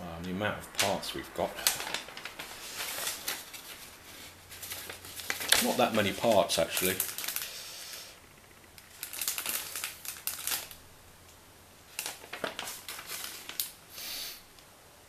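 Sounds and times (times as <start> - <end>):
paper pages rustling: 0.7 - 7.6, 8.8 - 10.8, 11.9 - 13.8.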